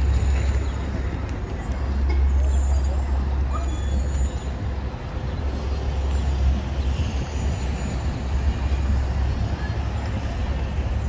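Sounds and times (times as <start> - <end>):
low street rumble: 0.0 - 11.0.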